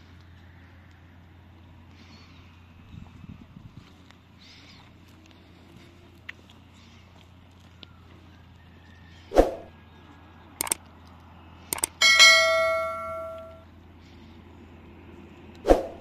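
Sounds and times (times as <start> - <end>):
quick clicks: 10.6 - 10.8, 11.7 - 12.0
bright bell ding: 11.8 - 13.6.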